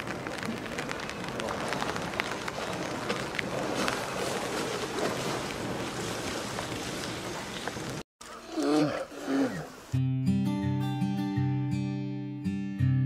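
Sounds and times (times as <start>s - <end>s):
raindrops ticking on a surface: 0.0s - 8.0s
steady rain: 0.0s - 8.0s.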